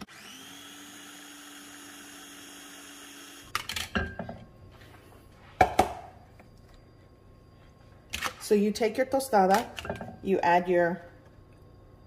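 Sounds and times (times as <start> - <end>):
food processor motor humming: 0.0 - 3.5.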